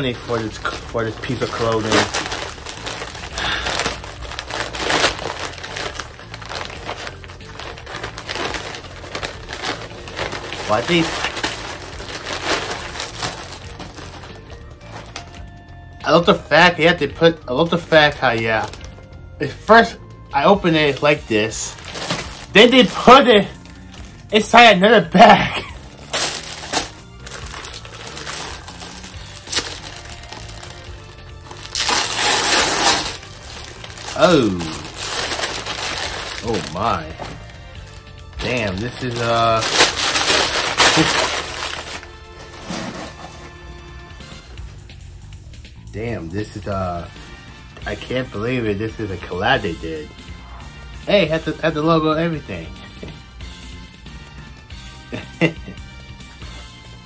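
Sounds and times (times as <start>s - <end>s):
packaging crinkling and rustling: 0.0s - 15.5s, 18.0s - 19.0s, 20.7s - 43.6s
background music: 0.0s - 57.0s.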